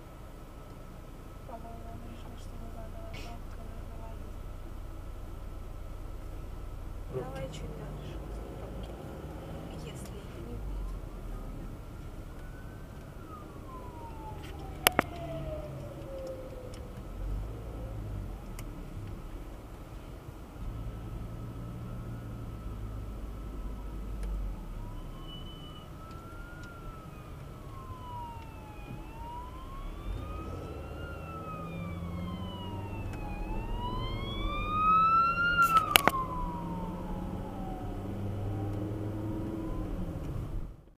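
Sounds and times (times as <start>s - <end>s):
car engine and road noise: 0.0s - 41.0s
emergency vehicle siren wailing: 7.1s - 19.0s, 20.6s - 40.9s
sharp clicks: 14.1s - 17.1s, 35.6s - 36.2s.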